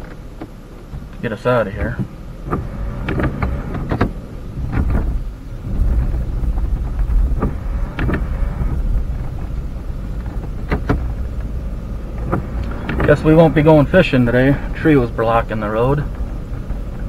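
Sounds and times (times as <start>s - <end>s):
engine and drivetrain rumble: 0.0s - 17.0s
sharp knocks and clicks: 1.8s - 5.2s, 5.9s - 13.2s.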